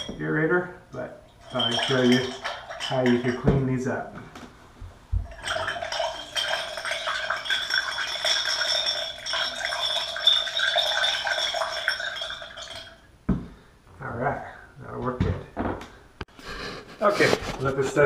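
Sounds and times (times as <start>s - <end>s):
metal parts rattling in glass: 1.3s - 3.5s, 5.3s - 13.0s.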